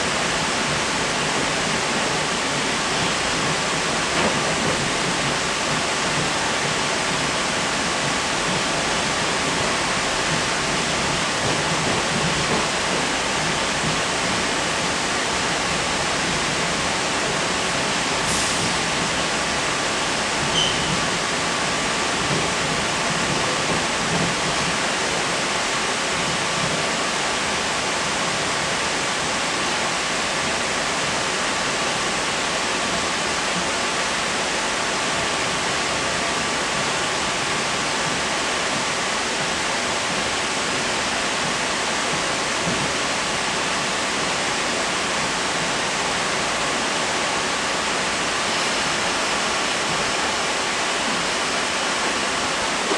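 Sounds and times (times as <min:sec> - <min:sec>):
train cabin rushing noise: 0:00.6 - 0:27.1.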